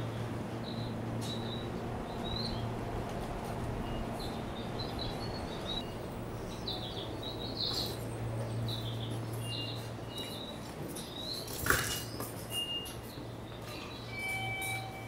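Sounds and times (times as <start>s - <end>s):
small birds chirping: 0.6s - 2.8s, 3.8s - 11.5s.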